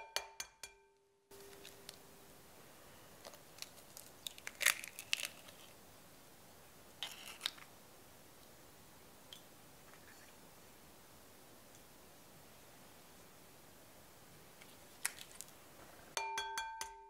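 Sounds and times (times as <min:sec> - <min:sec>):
eggshell crackling: 0:01.3 - 0:11.0, 0:14.4 - 0:16.2
egg cracking on bowl rim: 0:03.2 - 0:05.8, 0:07.0 - 0:07.7.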